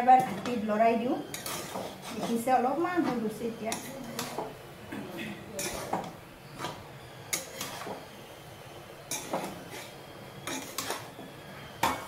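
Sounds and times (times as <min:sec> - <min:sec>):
metal spatula scraping a wok: 0:01.2 - 0:04.5, 0:05.6 - 0:06.0, 0:06.6 - 0:08.1, 0:09.0 - 0:12.0.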